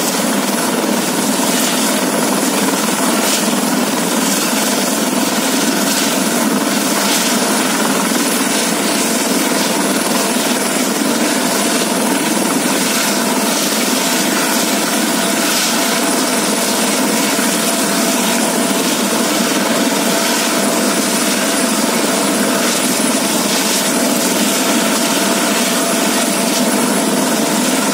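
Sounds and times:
helicopter rotor rushing: 0:00.0 - 0:27.9
helicopter turbine whine: 0:00.0 - 0:27.9.

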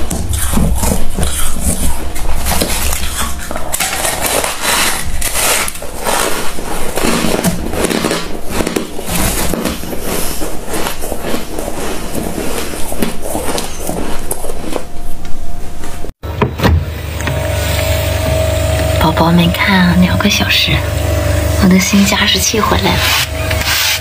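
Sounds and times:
frost crunching while chewed: 0:00.0 - 0:15.7
frost being scraped: 0:00.0 - 0:16.1, 0:21.8 - 0:24.0.

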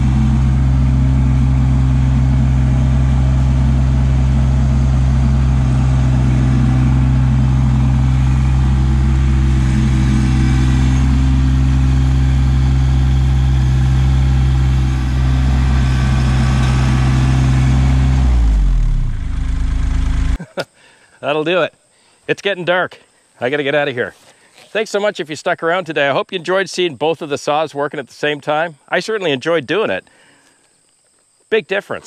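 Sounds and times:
diesel tractor engine running: 0:00.0 - 0:20.4.

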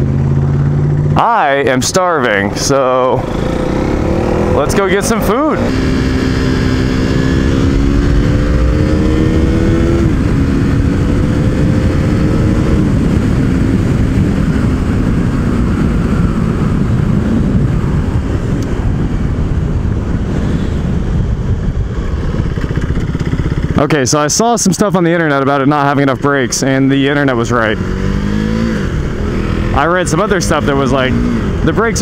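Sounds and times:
wind rush on microphone: 0:00.0 - 0:24.2
motorcycle engine accelerating: 0:00.0 - 0:32.0.

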